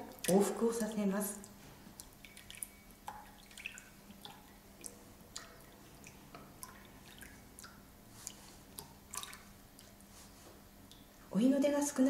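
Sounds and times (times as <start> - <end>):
small drips and splashes: 0.0 - 11.4
tea trickling into cups: 1.2 - 10.1.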